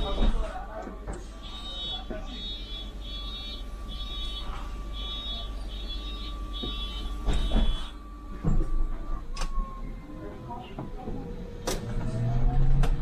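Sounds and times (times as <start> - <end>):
electronic warning beeper: 1.4 - 8.3
bus running rumble: 3.8 - 13.0.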